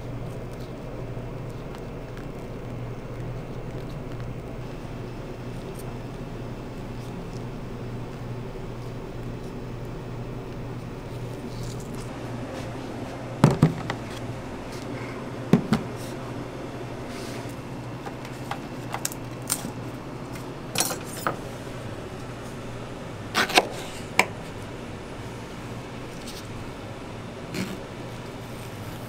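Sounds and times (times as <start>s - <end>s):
low hum: 0.0s - 29.0s
plastic containers clattering: 13.4s - 14.0s.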